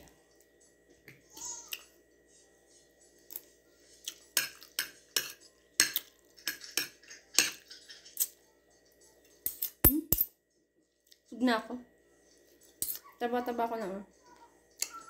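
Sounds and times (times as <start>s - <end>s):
cutlery clinking on a plate: 4.4s - 8.2s.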